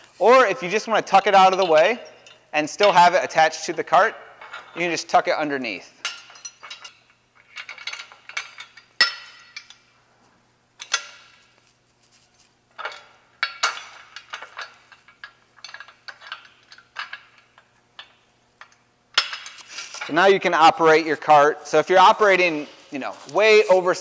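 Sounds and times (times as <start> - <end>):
metal clinks and rattles: 6.0 - 9.9, 12.7 - 20.2.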